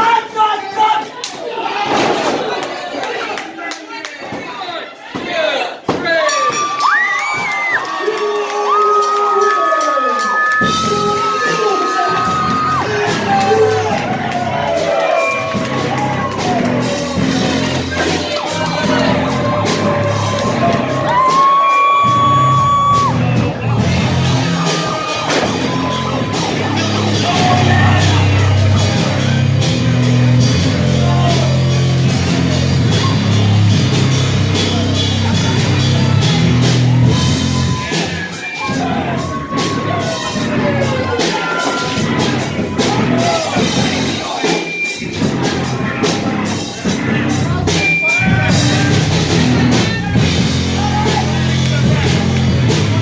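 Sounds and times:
people shouting and yelling: 0:00.0 - 0:53.0
loud rock music with vocals: 0:15.4 - 0:53.0.

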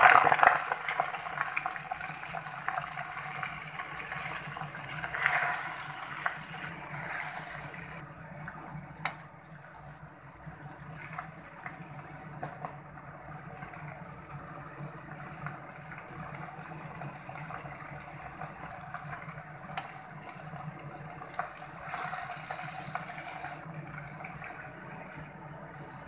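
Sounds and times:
leaves sizzling in a pan: 0:00.0 - 0:08.0.

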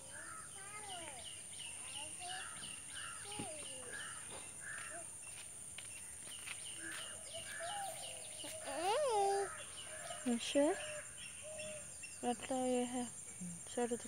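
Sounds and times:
birds calling: 0:00.0 - 0:14.0.

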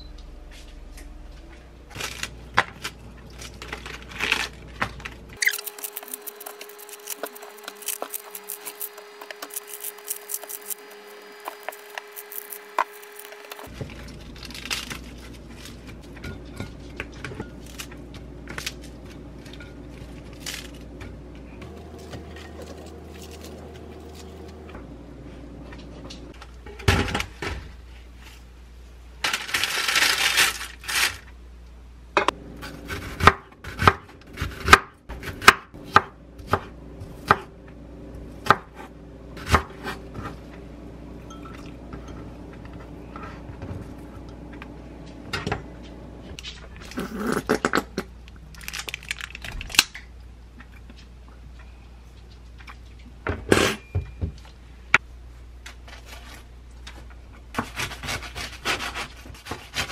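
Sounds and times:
steady hum: 0:00.0 - 0:29.6
knife chopping on wooden board: 0:38.4 - 0:40.3
glass bowl and utensils clinking: 0:41.2 - 0:42.3.

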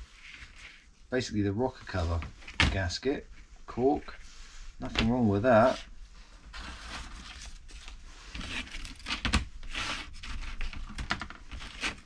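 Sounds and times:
packaging rustling and crinkling: 0:06.5 - 0:12.0.

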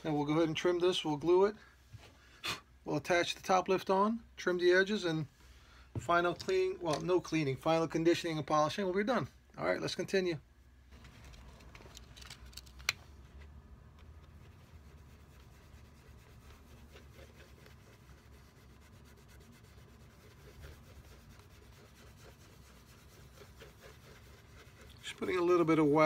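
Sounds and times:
cloth rubbing shoe leather: 0:14.3 - 0:26.0.

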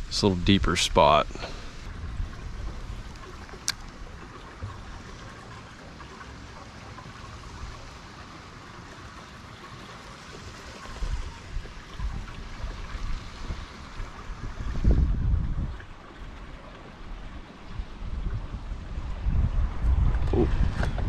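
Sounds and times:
wind buffeting microphone: 0:00.0 - 0:05.4, 0:10.8 - 0:21.0
water lapping against kayak hull: 0:01.4 - 0:21.0.

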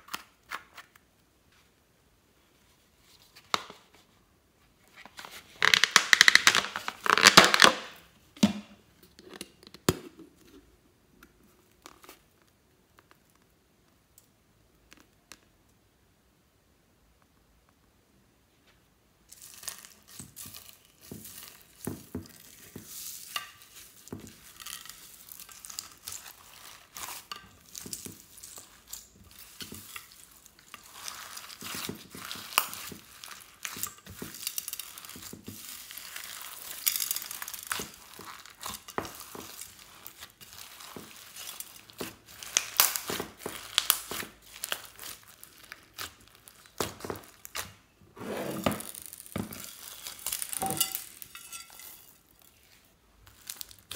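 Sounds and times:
slime squished by hand: 0:23.7 - 0:47.8.

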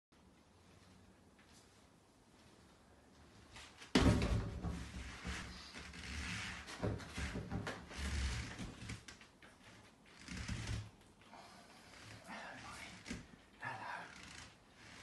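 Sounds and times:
body thump on exercise ball: 0:03.9 - 0:05.4
rubbing and knocking on exercise ball: 0:03.9 - 0:11.0.

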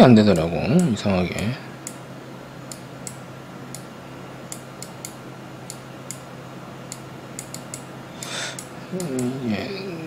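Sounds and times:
steady low hum: 0:00.0 - 0:10.0
mouse buttons clicking: 0:06.9 - 0:09.3.

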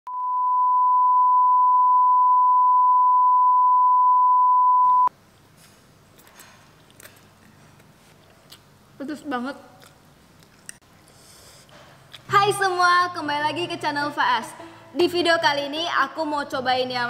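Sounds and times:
high-pitched sine beep: 0:00.0 - 0:05.1.

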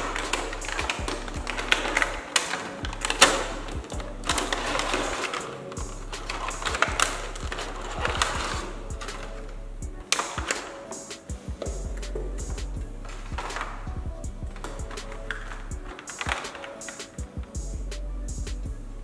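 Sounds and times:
background music: 0:00.0 - 0:19.0.

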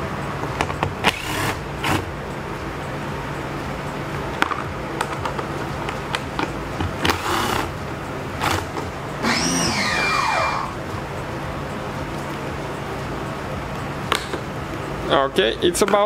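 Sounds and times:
cordless drill whine: 0:09.2 - 0:10.8.

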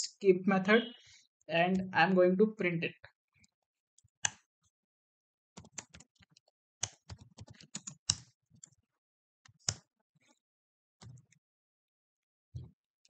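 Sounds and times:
typing on computer keyboard: 0:05.6 - 0:08.8.

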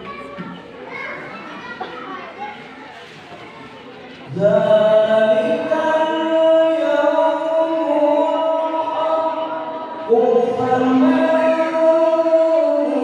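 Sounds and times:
man reciting melodically over loudspeaker: 0:04.3 - 0:13.0.

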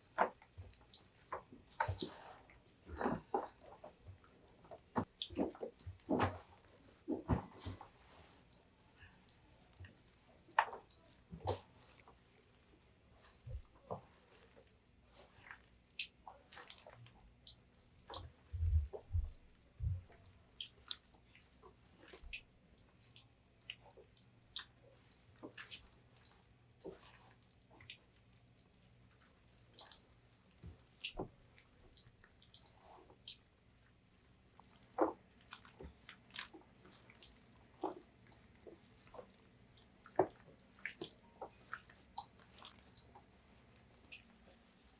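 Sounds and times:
wet squelches of mixing peppers: 0:00.0 - 0:44.9.

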